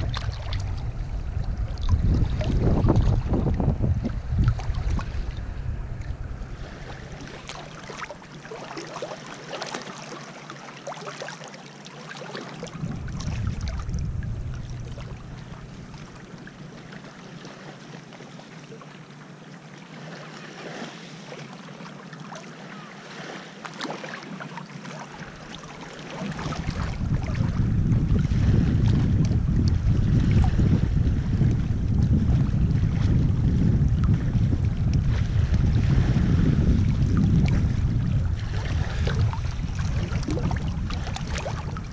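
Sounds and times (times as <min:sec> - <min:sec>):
wind rumbling on microphone: 0:00.0 - 0:08.6, 0:12.6 - 0:17.6, 0:25.1 - 0:41.9
waves lapping on pebbles: 0:06.1 - 0:13.9, 0:19.9 - 0:27.4, 0:35.0 - 0:41.9.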